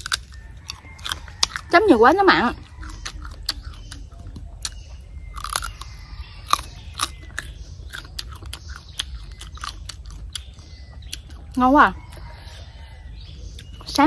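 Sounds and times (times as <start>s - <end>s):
person chewing crunchy mango: 0.0s - 14.0s.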